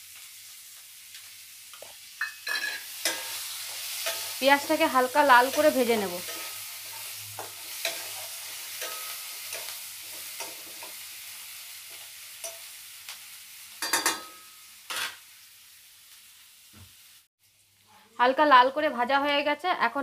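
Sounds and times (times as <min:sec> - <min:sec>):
onion sizzling in hot oil: 0:00.0 - 0:20.0
metal spatula scraping a pan: 0:01.8 - 0:04.8, 0:05.4 - 0:11.0.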